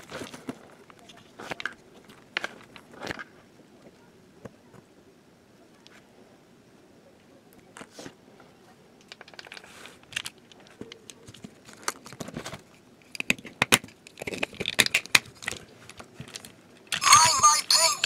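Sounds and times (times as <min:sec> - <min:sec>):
plastic toy clicks and rattles: 0:09.0 - 0:17.8.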